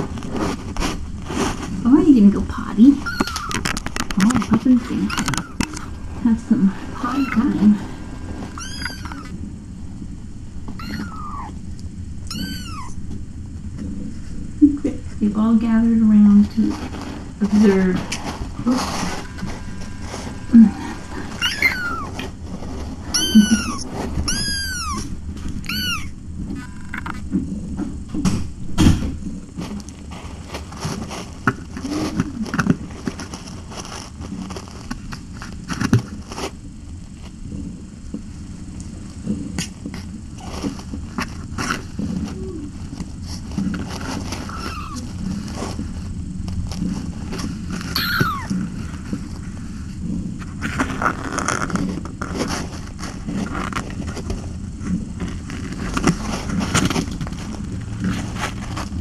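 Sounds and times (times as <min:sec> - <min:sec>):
kittens scrambling and scratching: 0:00.0 - 0:59.0
kitten mewing: 0:02.9 - 0:09.4, 0:10.7 - 0:11.6, 0:12.2 - 0:13.0, 0:18.7 - 0:22.4, 0:23.1 - 0:27.2, 0:44.4 - 0:45.2, 0:48.0 - 0:48.7.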